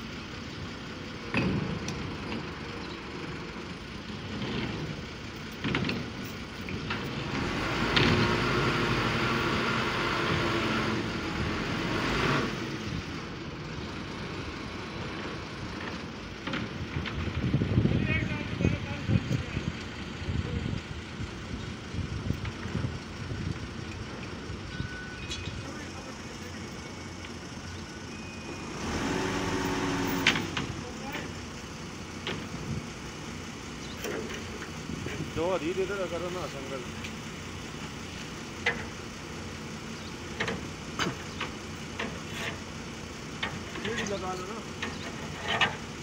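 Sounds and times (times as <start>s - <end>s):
diesel truck engine idling: 0.0s - 46.0s.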